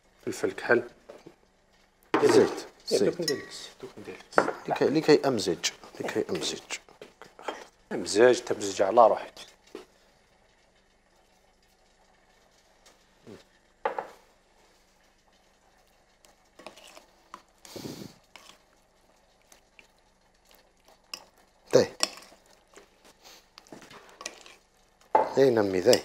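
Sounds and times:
metal spoon scraping glass bowl: 16.6s - 17.0s, 24.2s - 24.6s.

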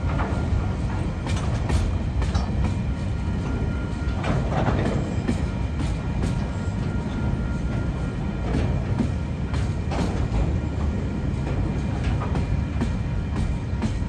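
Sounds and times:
train wheels rumbling on track: 0.0s - 14.0s
wheels clunking over rail joints: 0.0s - 14.0s.

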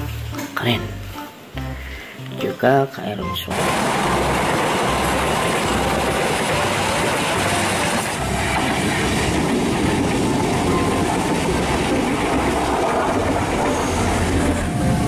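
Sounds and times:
electric train rolling past: 3.3s - 15.0s
train carriages rolling past: 3.4s - 15.0s.

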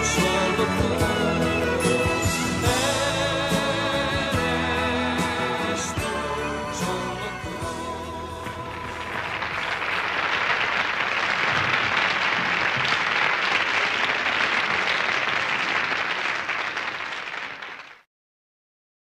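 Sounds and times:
audience applauding: 8.6s - 18.0s.

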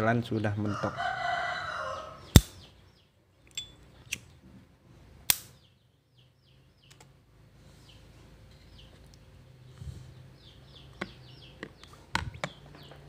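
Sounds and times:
rooster crowing: 0.6s - 2.3s.

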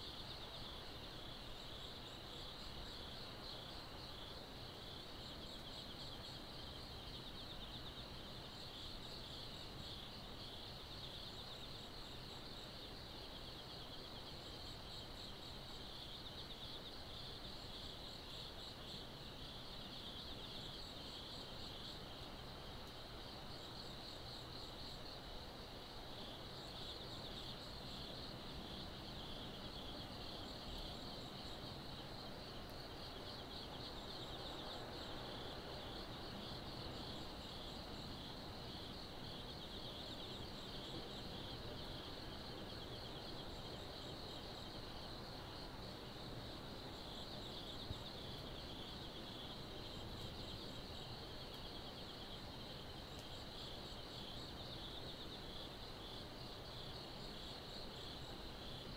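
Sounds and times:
higher insect call: 0.0s - 58.9s
insects chirping in a fast trill: 0.0s - 58.9s.

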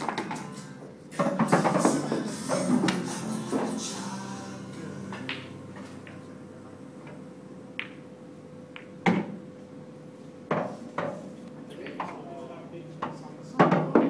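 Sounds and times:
faint steady hum: 0.0s - 14.0s
pool balls knocking together: 1.2s - 3.8s, 5.1s - 6.3s, 7.0s - 8.1s, 8.7s - 9.4s, 13.0s - 14.0s
cue tip striking ball: 5.1s - 8.1s, 8.7s - 9.4s.

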